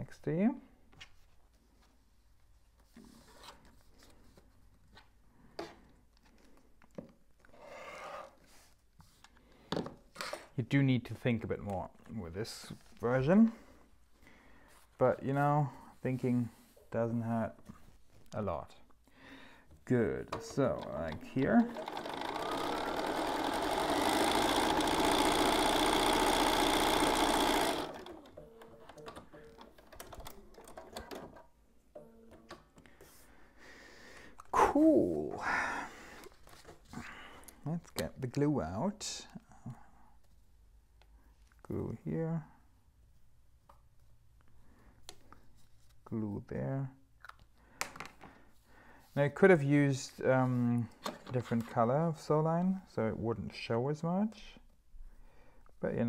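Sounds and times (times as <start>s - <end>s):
sewing machine stitching: 20.6s - 31.5s.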